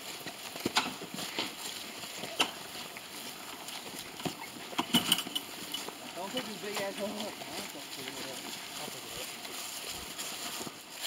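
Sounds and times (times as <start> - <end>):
carcass dragged over grass: 0.0 - 11.0
footsteps on grass: 0.0 - 11.0
sharp crunches and snaps: 0.6 - 1.5.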